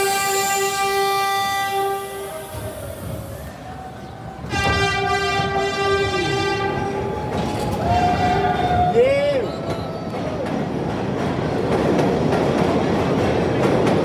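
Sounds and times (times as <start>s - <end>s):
train horn blasts: 0.0s - 2.8s, 4.5s - 7.2s
train running rumble: 0.0s - 14.0s.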